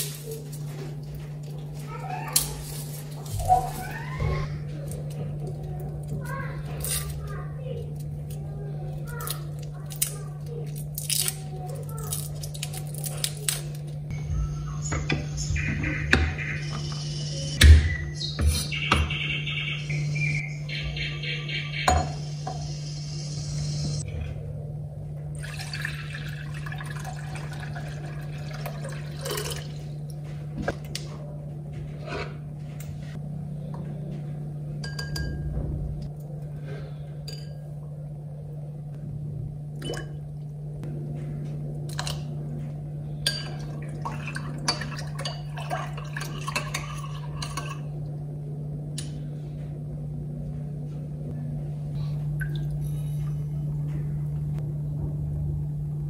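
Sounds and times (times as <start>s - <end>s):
steady low hum: 0.0s - 56.0s
liquid pouring and sloshing: 25.4s - 30.0s, 43.5s - 47.9s, 52.3s - 53.2s
kitchen utensils clinking: 43.2s - 47.9s.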